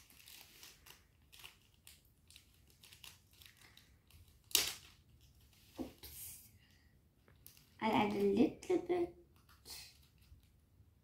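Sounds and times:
plastic packet crinkling: 0:00.0 - 0:05.7, 0:07.3 - 0:08.5.

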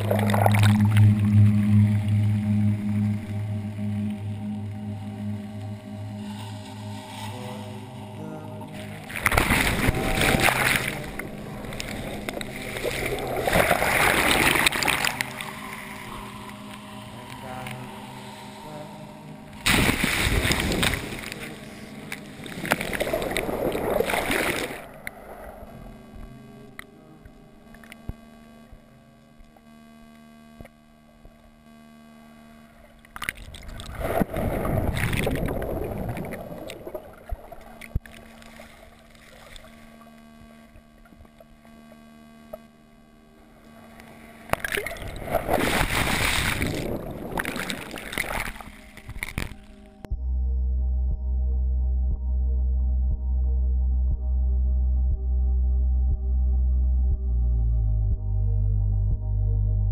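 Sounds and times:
faint steady hum: 0:00.0 - 0:59.9
ocean waves rushing water: 0:06.2 - 0:25.7, 0:33.5 - 0:39.7, 0:44.3 - 0:49.3.

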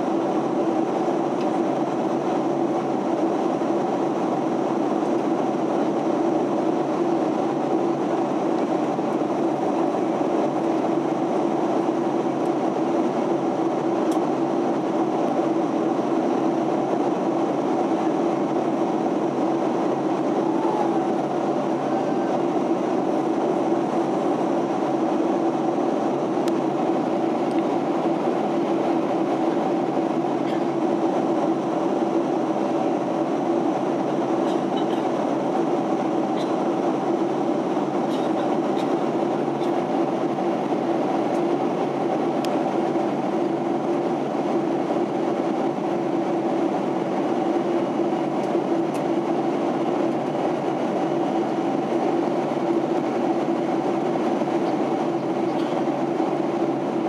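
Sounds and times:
airliner engines droning: 0:00.0 - 0:57.0
constant low hum: 0:00.0 - 0:57.0.

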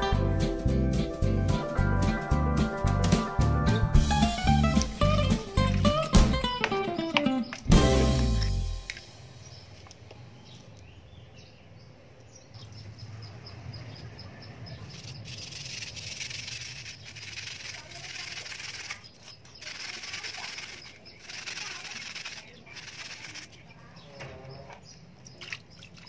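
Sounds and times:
steel wool scrubbing circuit board: 0:14.9 - 0:23.6.

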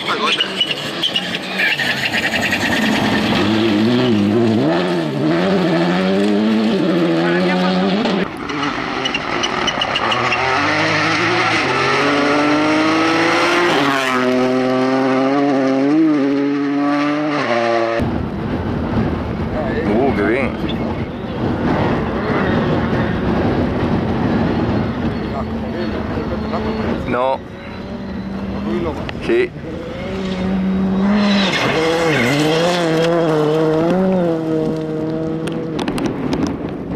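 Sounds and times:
rally car engine accelerating: 0:00.1 - 0:18.1, 0:21.4 - 0:36.4.

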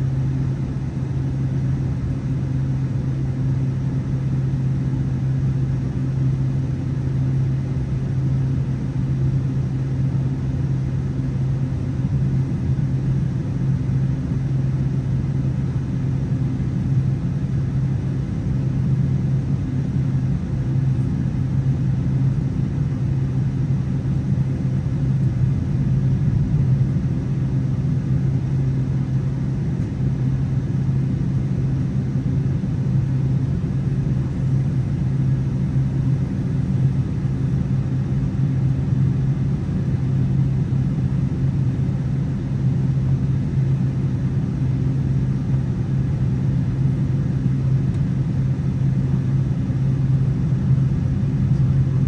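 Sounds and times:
airplane cabin drone: 0:00.0 - 0:52.0.

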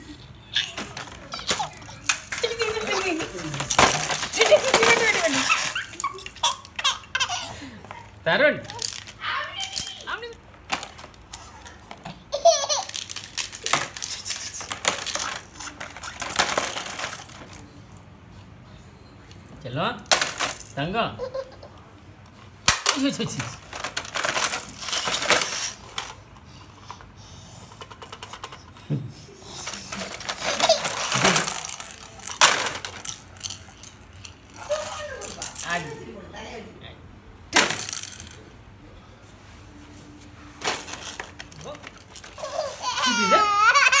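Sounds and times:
plastic toy pieces clattering: 0:00.6 - 0:07.4, 0:08.6 - 0:11.8, 0:12.4 - 0:17.6, 0:20.1 - 0:20.8, 0:22.7 - 0:26.2, 0:27.8 - 0:28.7, 0:29.6 - 0:36.0, 0:37.6 - 0:38.5, 0:40.6 - 0:44.0
baby squealing with laughter: 0:05.1 - 0:07.6, 0:42.4 - 0:44.0.

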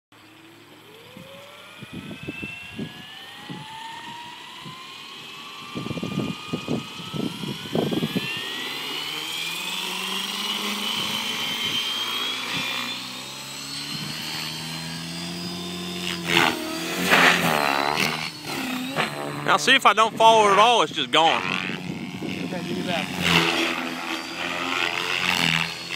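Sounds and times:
rc helicopter motor and rotor whine: 0:00.2 - 0:25.9
rotor wash buffeting microphone: 0:15.2 - 0:24.3.

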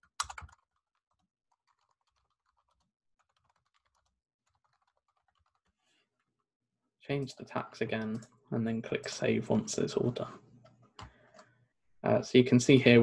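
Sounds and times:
faint keyboard typing: 0:00.0 - 0:06.0, 0:07.3 - 0:08.4, 0:09.5 - 0:11.6.

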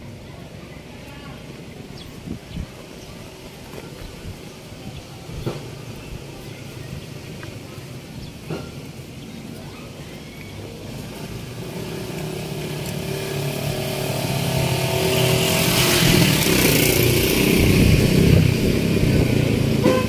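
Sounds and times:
vehicle engine approaching: 0:03.0 - 0:20.0.

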